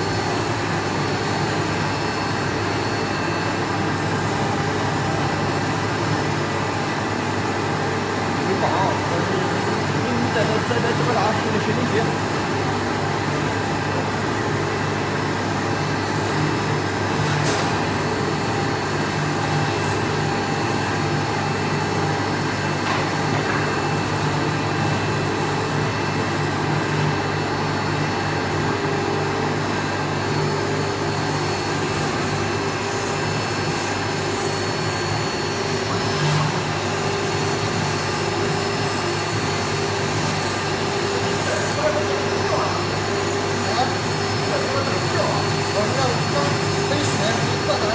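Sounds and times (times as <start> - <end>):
router spindle whine: 17.8 - 47.9.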